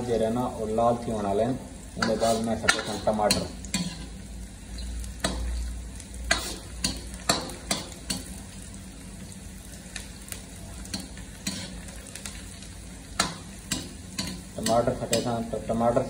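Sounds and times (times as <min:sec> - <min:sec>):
onions sizzling in hot oil: 0:00.0 - 0:16.0
metal ladle scraping a pan: 0:02.0 - 0:04.2, 0:06.3 - 0:08.2, 0:10.9 - 0:11.9.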